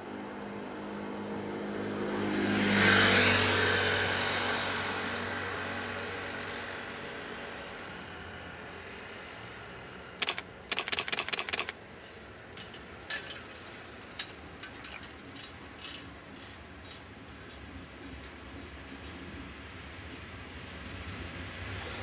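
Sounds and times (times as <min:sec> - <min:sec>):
camera shutters clicking: 0:10.2 - 0:11.7.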